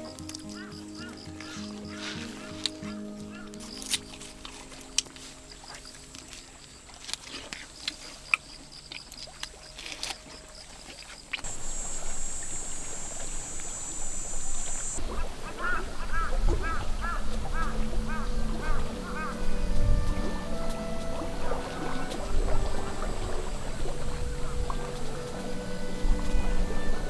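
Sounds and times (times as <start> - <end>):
steady high hiss: 11.4 - 16.1, 16.9 - 27.0
low rumble: 11.5 - 27.0.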